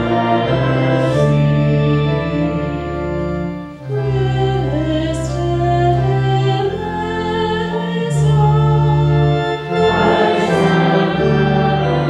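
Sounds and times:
church organ chords: 0:00.0 - 0:12.0
voices singing a chant: 0:07.7 - 0:12.0.

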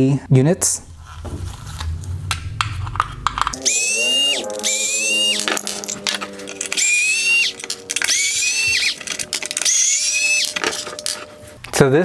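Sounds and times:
electric screwdriver whining: 0:03.5 - 0:11.4.

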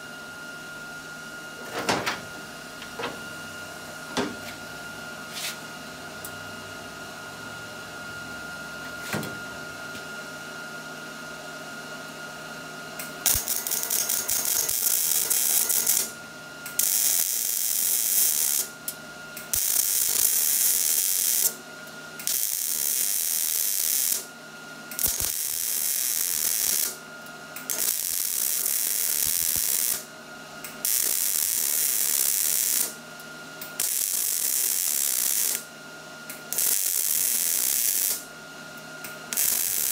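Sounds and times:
welder arc crackling: 0:13.2 - 0:16.1, 0:16.8 - 0:18.7, 0:19.5 - 0:21.5, 0:22.2 - 0:24.2, 0:25.0 - 0:27.0, 0:27.7 - 0:30.0, 0:30.8 - 0:32.9, 0:33.8 - 0:35.6, 0:36.5 - 0:38.2, 0:39.3 - 0:39.9.

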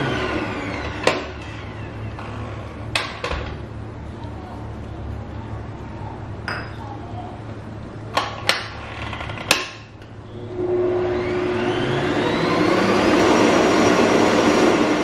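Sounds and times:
stand mixer motor whining: 0:00.0 - 0:02.2, 0:10.4 - 0:15.0.

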